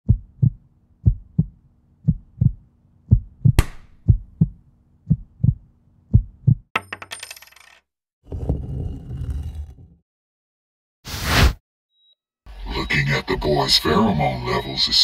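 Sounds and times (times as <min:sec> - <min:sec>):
deep double thumps: 0:00.0 - 0:06.7.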